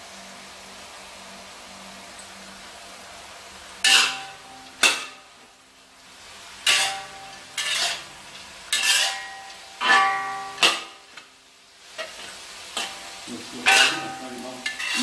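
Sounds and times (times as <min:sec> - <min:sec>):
faint frying sizzle: 0:00.0 - 0:15.0
metal spatula scraping a wok: 0:03.8 - 0:05.2, 0:06.6 - 0:11.2, 0:11.9 - 0:15.0.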